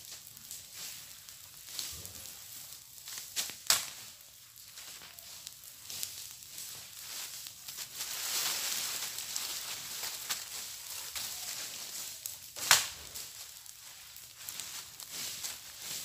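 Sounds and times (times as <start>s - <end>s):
dry leaves rustling: 0.0s - 16.0s
dry stick cracking: 3.0s - 7.9s, 9.1s - 16.0s.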